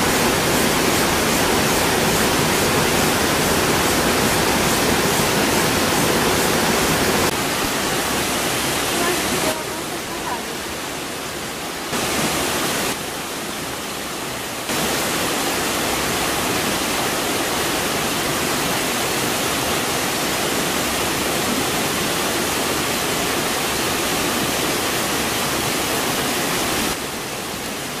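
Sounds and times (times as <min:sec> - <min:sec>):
water cascading over rocks: 0:00.0 - 0:28.0.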